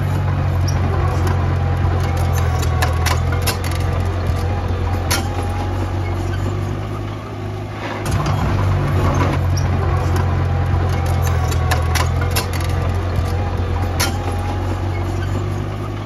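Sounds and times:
diesel engine droning: 0:00.0 - 0:16.0
metallic clank: 0:00.6 - 0:07.1, 0:07.8 - 0:16.0.

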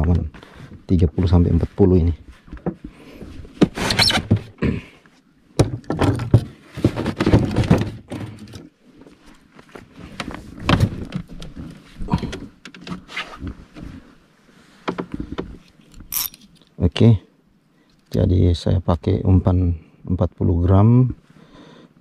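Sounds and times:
rustling handling noise: 0:06.1 - 0:16.8.

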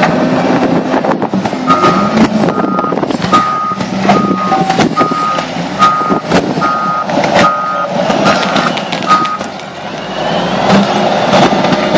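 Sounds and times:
wheel loader engine running: 0:00.0 - 0:11.9
reversing alarm beeping: 0:01.7 - 0:09.5.

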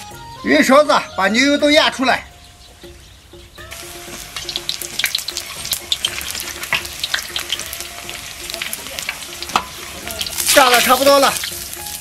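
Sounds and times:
fat sizzling and crackling in oil: 0:03.7 - 0:12.0.

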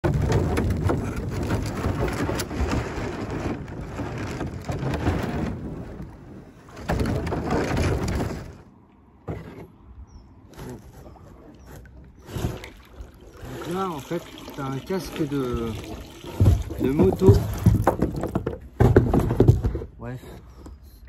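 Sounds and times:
canoe knocks: 0:00.0 - 0:05.5, 0:13.4 - 0:19.9
rumbling crackling handling noise: 0:00.0 - 0:14.0, 0:15.2 - 0:20.0.

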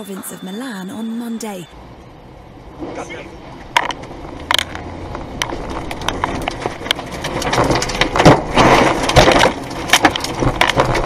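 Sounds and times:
debris hitting car body: 0:06.2 - 0:11.0.

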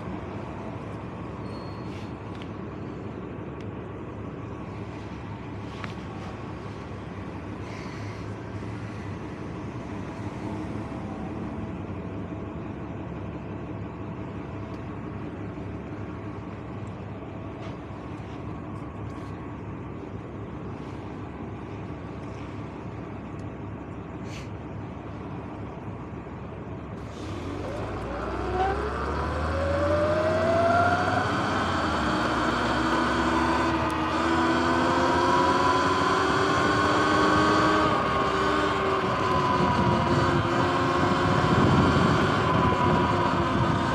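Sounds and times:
bus idling: 0:00.0 - 0:43.9
traffic hum: 0:00.0 - 0:43.9
wind: 0:00.0 - 0:43.9
electric motorbike whine: 0:27.4 - 0:43.9.

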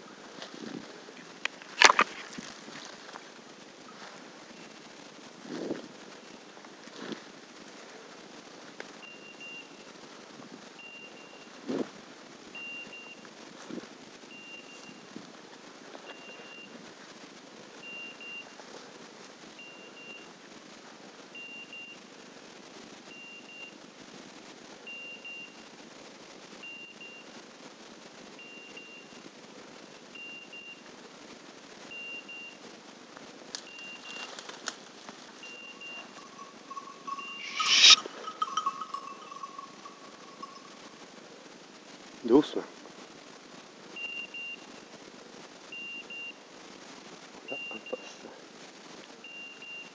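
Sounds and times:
beeper collar short high beeps: 0:35.4 - 0:40.9.

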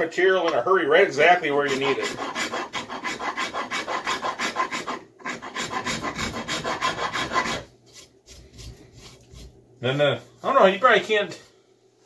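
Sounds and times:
rasp filing wood: 0:01.5 - 0:10.6.

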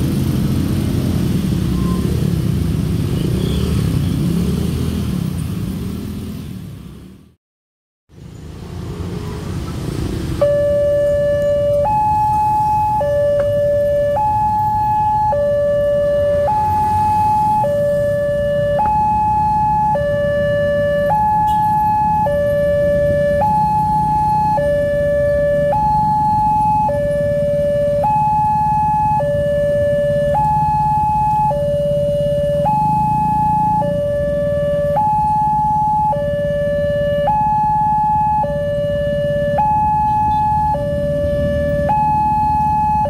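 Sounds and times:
low rumble of road traffic: 0:00.0 - 0:07.4, 0:08.1 - 0:43.0
electronic two-tone crossing alarm: 0:10.4 - 0:43.0.

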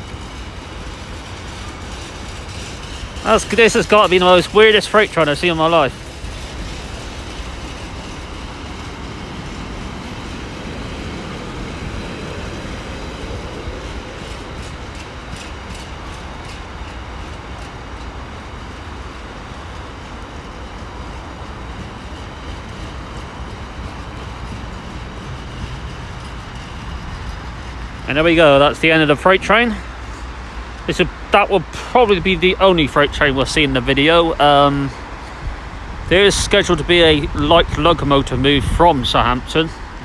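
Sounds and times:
train wheels rumbling on rail: 0:00.0 - 0:40.0.

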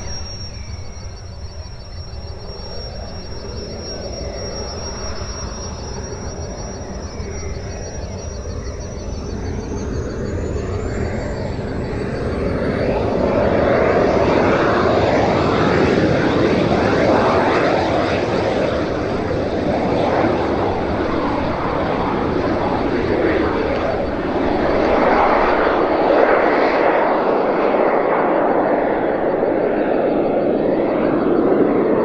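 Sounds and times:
model jet turbines whining: 0:00.0 - 0:32.0
loud rushing jet noise: 0:09.9 - 0:32.0.

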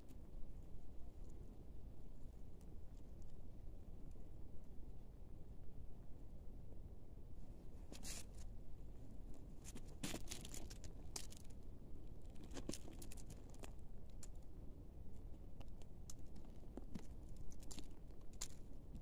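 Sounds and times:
gravel and dry leaves crunching: 0:09.6 - 0:11.6, 0:12.2 - 0:14.3, 0:16.1 - 0:18.7.

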